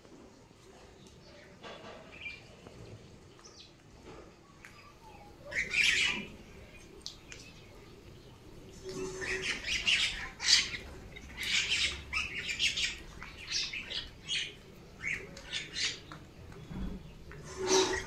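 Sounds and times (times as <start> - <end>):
mynas calling: 4.9 - 7.6, 8.8 - 16.6.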